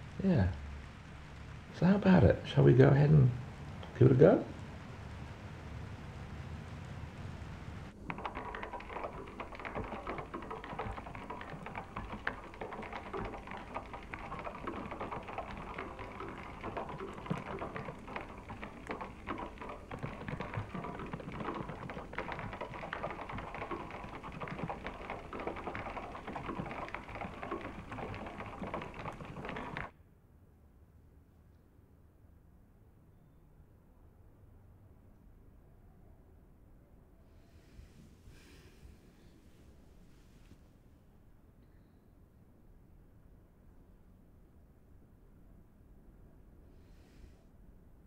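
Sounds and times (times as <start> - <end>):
rapid keyboard typing: 8.0 - 29.9.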